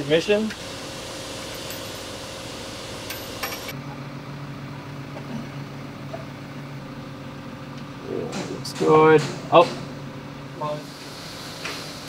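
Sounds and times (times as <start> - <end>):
machinery hiss: 0.0 - 3.7, 10.7 - 12.0
workshop machinery hum: 0.0 - 12.0.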